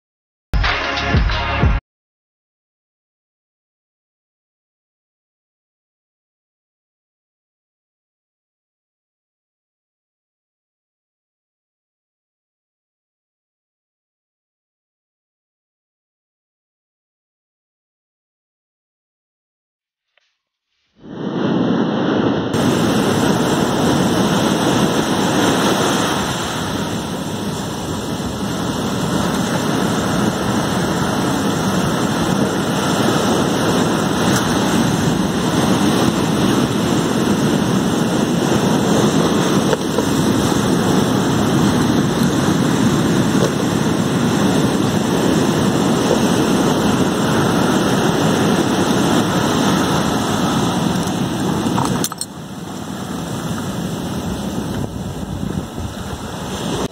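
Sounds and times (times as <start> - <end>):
waves breaking on shore: 21.0 - 56.9.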